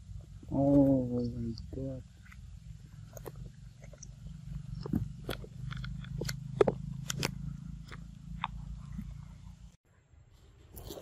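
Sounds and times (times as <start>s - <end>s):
low steady rumble: 0.0s - 9.8s
monkey chewing fruit: 1.6s - 9.5s.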